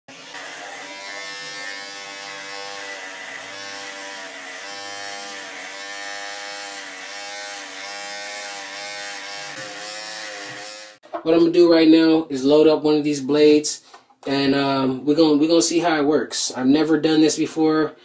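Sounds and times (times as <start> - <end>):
electric hair clipper buzzing: 0.1 - 11.0.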